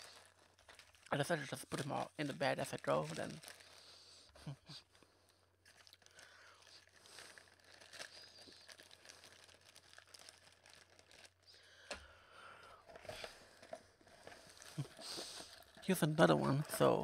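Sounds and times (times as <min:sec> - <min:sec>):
candy wrappers crinkling: 0:00.0 - 0:17.0.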